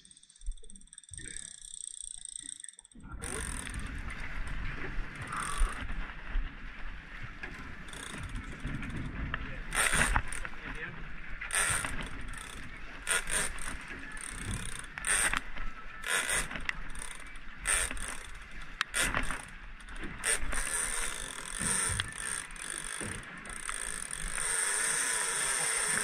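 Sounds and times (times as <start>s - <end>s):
fishing reel ratcheting: 0.0s - 4.0s, 5.3s - 6.0s, 7.9s - 9.1s, 9.7s - 10.6s, 11.5s - 26.0s.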